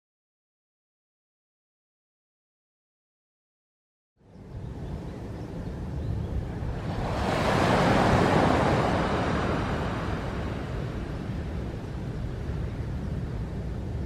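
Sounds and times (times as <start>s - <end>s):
rushing wind: 4.2s - 14.0s
water noise: 5.0s - 14.0s.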